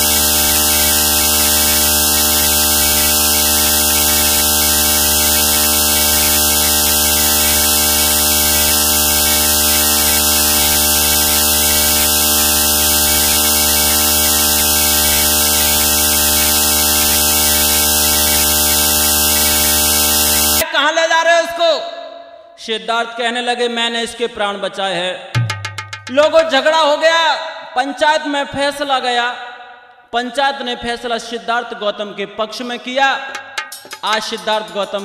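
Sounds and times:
electrical hum and buzz: 0.0s - 20.6s.

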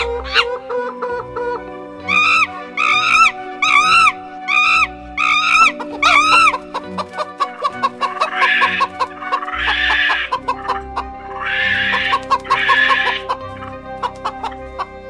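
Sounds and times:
background music: 0.0s - 15.0s
hen clucking: 0.0s - 15.0s
hen squawking cackles: 0.0s - 15.0s
short high arched calls: 2.1s - 6.6s.

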